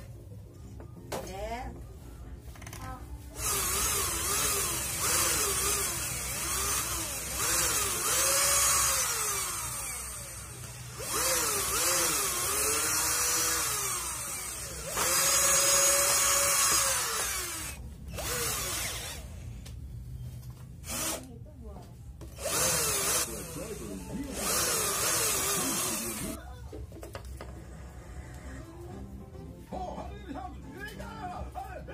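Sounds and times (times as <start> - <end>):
cordless drill motor whine: 3.4 - 19.2, 22.4 - 26.4.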